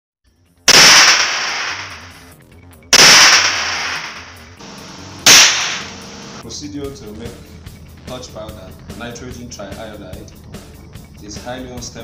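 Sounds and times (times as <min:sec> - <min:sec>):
sharp explosive cracks: 0:00.7 - 0:02.3, 0:02.9 - 0:06.4.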